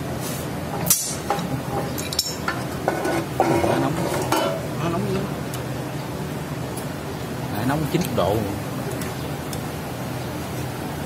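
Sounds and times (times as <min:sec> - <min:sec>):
wrench scraping metal fitting: 0:00.8 - 0:04.6
sharp metallic clank: 0:00.8 - 0:04.7.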